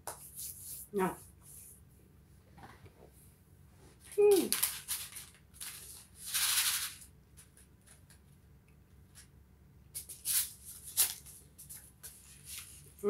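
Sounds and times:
paper seed packets rustling: 4.0 - 8.0.

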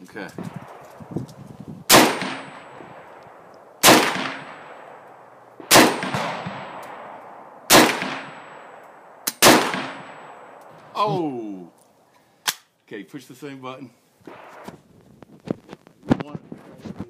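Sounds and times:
gunshots with echoing tail: 0.4 - 1.2, 1.9 - 10.9, 14.3 - 14.7.

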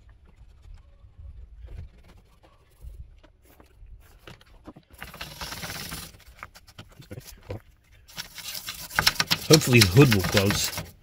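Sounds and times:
rag rubbing on engine parts: 5.0 - 7.4, 8.1 - 11.0.

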